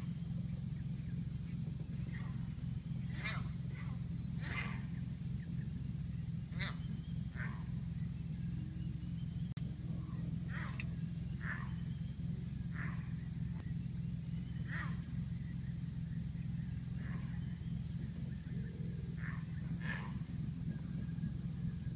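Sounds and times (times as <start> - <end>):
steady low hum: 0.0 - 21.9
wild animal calls falling in pitch: 10.1 - 11.8.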